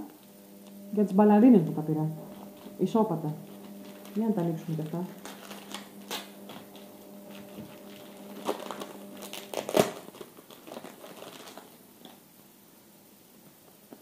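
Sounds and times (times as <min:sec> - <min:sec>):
packaging crinkling and tearing: 0:03.5 - 0:12.2.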